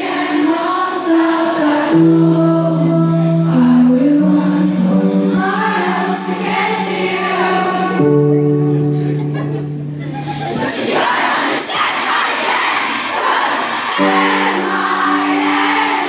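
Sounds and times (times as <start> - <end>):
woman singing: 0.0 - 8.4
keyboard chords: 0.0 - 11.0, 13.6 - 16.0
crowd cheering: 10.0 - 16.0.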